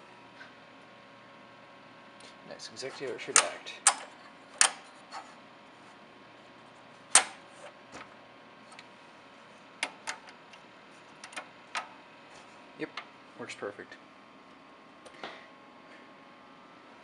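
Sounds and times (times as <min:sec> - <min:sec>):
relays clicking: 0:03.0 - 0:04.8.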